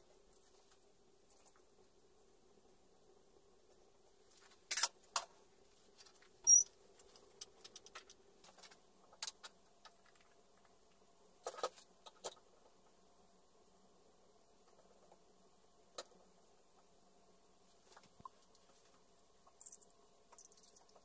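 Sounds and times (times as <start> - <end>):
brief squeak: 6.4 - 6.7.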